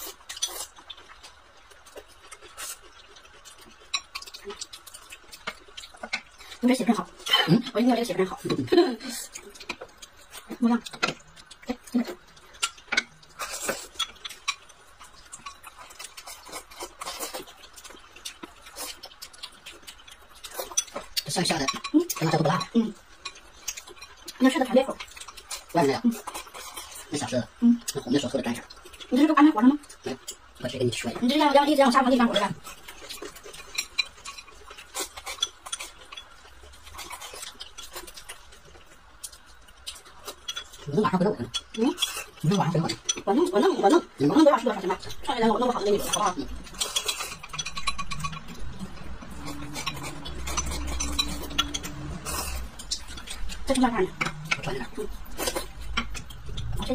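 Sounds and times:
chewing: 0.0 - 56.9
chopsticks clinking on glass bowl: 45.8 - 48.6, 49.3 - 54.7.

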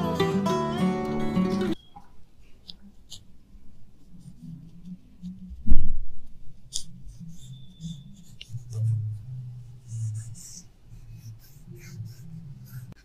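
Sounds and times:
fingers rubbing vinyl skin: 2.7 - 5.7, 6.6 - 13.0.

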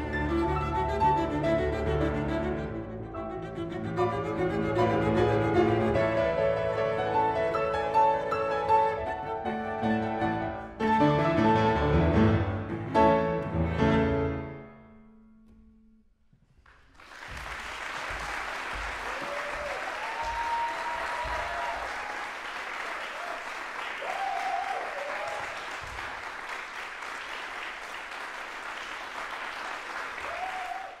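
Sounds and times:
audience applauding: 16.7 - 31.0
cheers: 17.9 - 26.1, 29.7 - 31.0.

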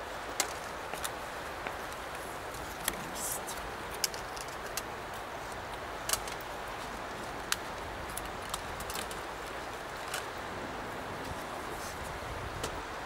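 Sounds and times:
gear handling clicks and taps: 3.9 - 6.5.

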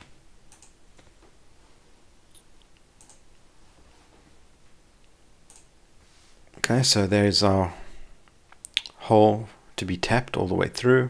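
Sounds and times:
low room hiss: 0.0 - 11.0
computer mouse clicks: 0.5 - 1.1, 2.3 - 3.2, 5.5 - 5.7.

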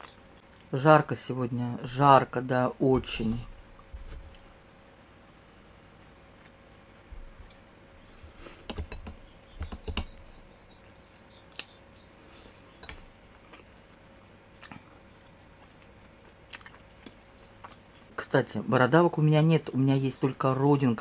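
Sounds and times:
person chewing wetly: 10.8 - 12.0, 12.8 - 18.1.

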